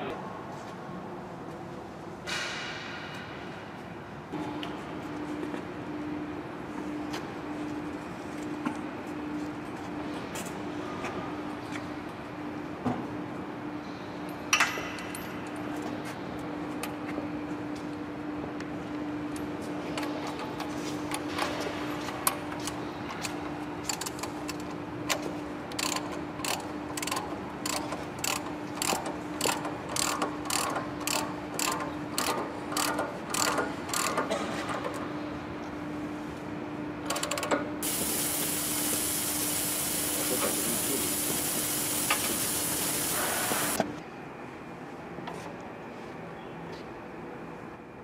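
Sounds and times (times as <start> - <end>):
steady machine hum: 0.0 - 14.5, 15.2 - 45.2
loud steady hiss: 37.8 - 43.8.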